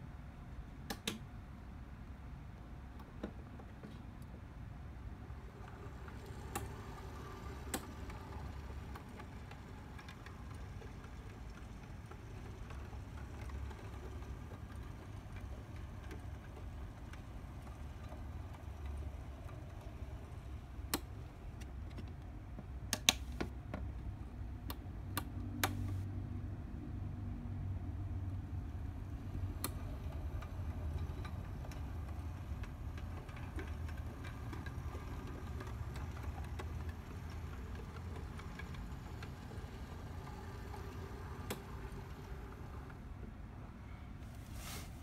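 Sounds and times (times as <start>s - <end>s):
model train motor hum: 5.1s - 21.7s, 28.6s - 43.2s
wheels clicking over rail joints: 5.1s - 23.9s, 28.5s - 43.3s.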